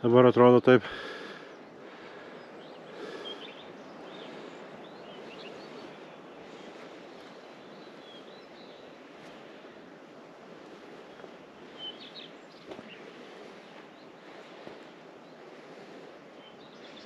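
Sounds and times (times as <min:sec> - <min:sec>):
wind hiss: 0:00.0 - 0:17.0
bird chirps: 0:02.3 - 0:09.4, 0:11.6 - 0:14.1.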